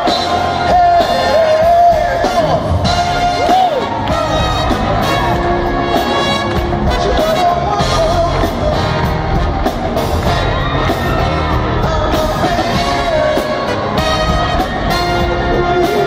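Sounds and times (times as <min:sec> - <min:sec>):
person singing: 0:00.0 - 0:04.8, 0:11.2 - 0:16.0
live pop-rock band playing: 0:00.0 - 0:16.0.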